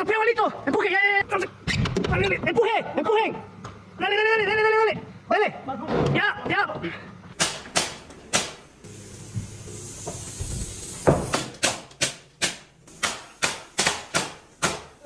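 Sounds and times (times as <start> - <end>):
nail gun shots into wood: 7.4 - 8.6, 11.3 - 14.9
faint air hiss: 8.3 - 11.6.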